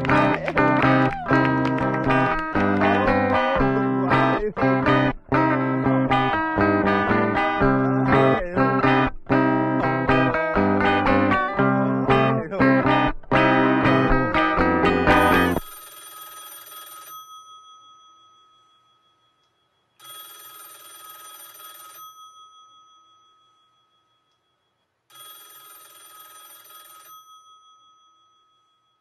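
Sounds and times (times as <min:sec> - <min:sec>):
song music: 0:00.0 - 0:15.6
telephone bell ringing: 0:15.1 - 0:19.1, 0:20.0 - 0:24.2, 0:25.1 - 0:29.0.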